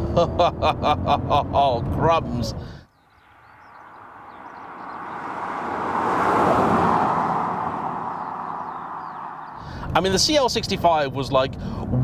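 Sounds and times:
car driving past at speed: 0:03.2 - 0:09.7.

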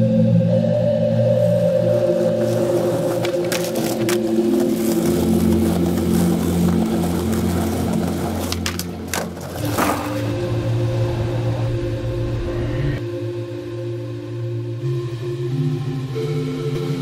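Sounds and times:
organ-like background music: 0:00.0 - 0:17.0
skateboard wheels rolling on pavement: 0:01.4 - 0:11.9
skateboard clacks: 0:02.4 - 0:10.3.

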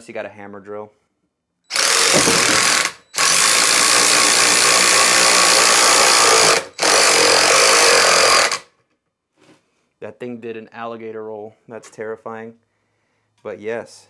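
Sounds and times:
impact driver hammering bolt into wood: 0:01.7 - 0:08.6.

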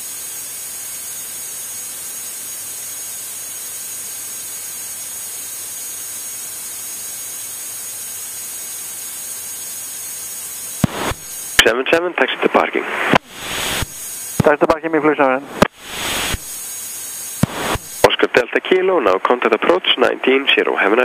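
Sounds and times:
intercom hiss with high whine: 0:08.5 - 0:21.0.

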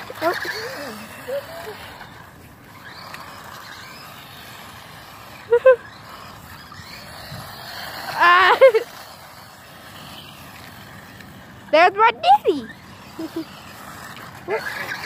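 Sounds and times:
high-pitched vocal cries: 0:00.0 - 0:02.2, 0:03.1 - 0:06.3, 0:14.4 - 0:15.0
small electric motor whining: 0:00.0 - 0:15.0.

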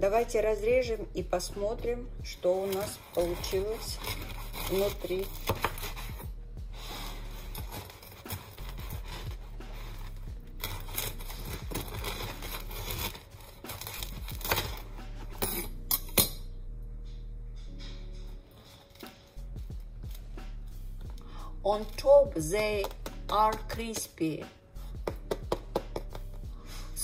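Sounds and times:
knife sawing through bread crust: 0:02.5 - 0:15.4
bread crust cracking: 0:02.7 - 0:06.3, 0:07.3 - 0:15.1.

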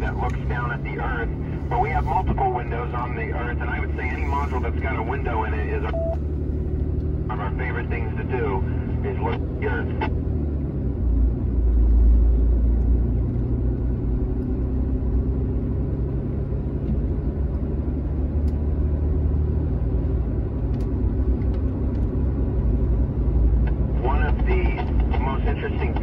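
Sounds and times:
radio speaker hiss: 0:00.0 - 0:06.0, 0:07.3 - 0:10.1, 0:24.0 - 0:26.0
truck cabin low rumble: 0:00.0 - 0:26.0.

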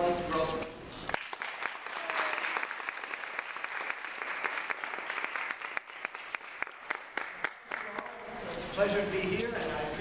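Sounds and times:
audience applauding: 0:01.1 - 0:08.3.

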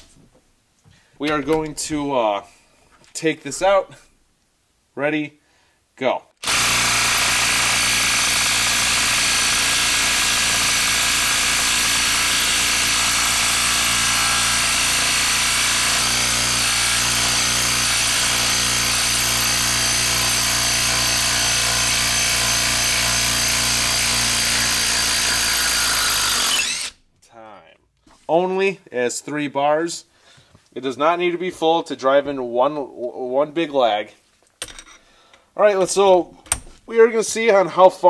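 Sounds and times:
impact driver hammering: 0:06.4 - 0:27.0.

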